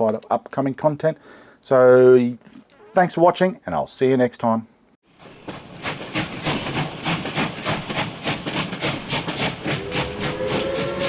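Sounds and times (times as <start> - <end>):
steam locomotive chuffing: 5.1 - 11.0
steam locomotive whistle: 9.4 - 11.0.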